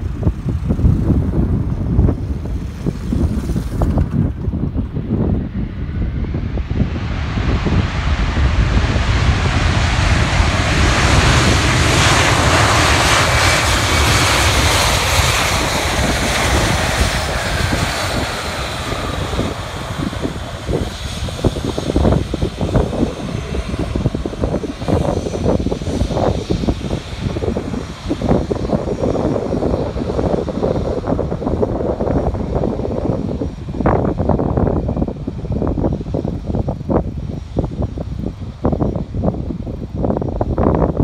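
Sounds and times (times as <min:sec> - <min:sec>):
jet engines whining: 0:00.0 - 0:40.0
wind buffeting microphone: 0:00.0 - 0:41.0.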